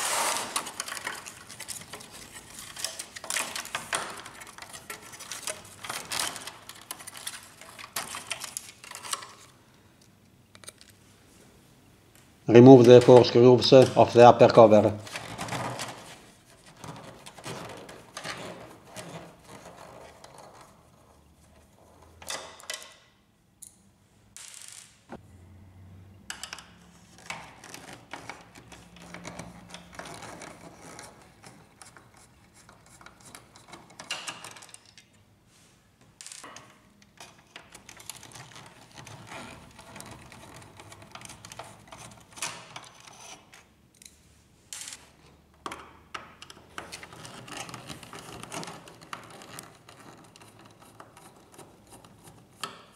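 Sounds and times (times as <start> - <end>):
plastic parts handled: 0.0 - 9.6.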